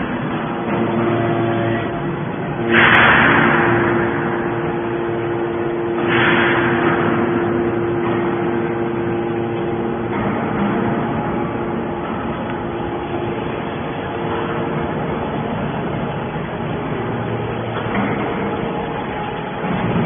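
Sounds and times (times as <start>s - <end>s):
hydraulic pump humming: 0.0s - 20.0s
loud hydraulic hissing: 2.6s - 9.1s.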